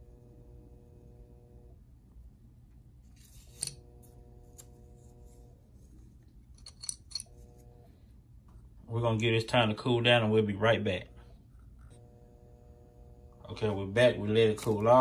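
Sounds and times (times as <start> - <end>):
faint steady hum: 0.0 - 15.0
metal pendant clicking: 6.5 - 7.4.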